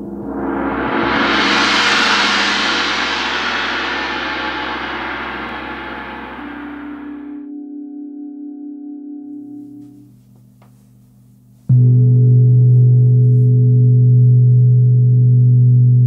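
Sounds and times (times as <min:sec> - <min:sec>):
gong ringing: 0:00.0 - 0:07.5.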